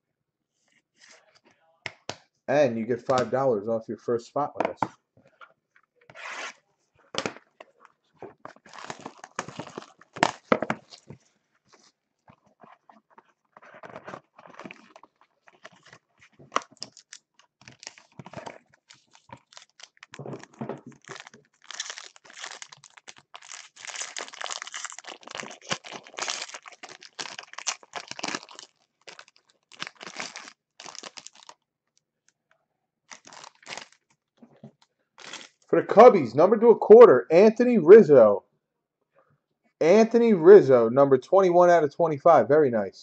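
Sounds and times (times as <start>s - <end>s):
foil wrapper tearing and crinkling: 8.6s - 11.1s, 14.2s - 31.6s, 33.1s - 34.1s, 35.2s - 35.6s.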